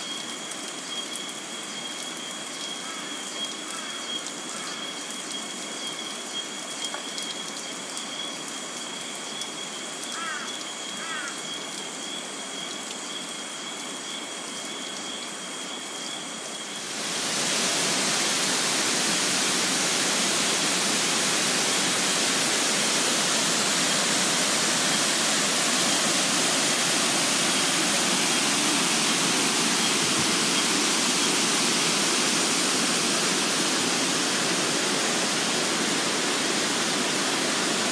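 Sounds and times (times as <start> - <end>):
water trickling and dripping: 0.0 - 15.8, 16.4 - 37.9
waterfall rushing: 16.8 - 37.9.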